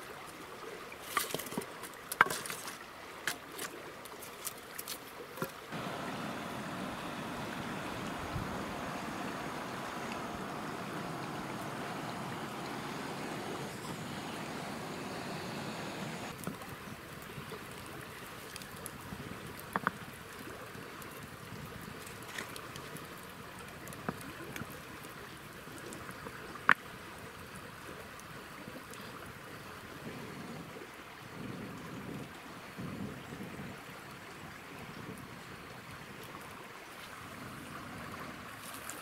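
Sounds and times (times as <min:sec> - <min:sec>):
running stream water: 0:00.0 - 0:39.0
campfire crackling and popping: 0:05.7 - 0:20.3.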